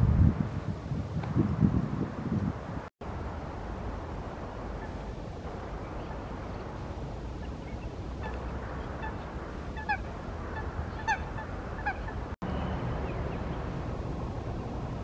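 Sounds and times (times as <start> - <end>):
low outdoor rumble: 1.9 - 15.0
waterbird honking: 4.7 - 5.0, 7.4 - 13.2.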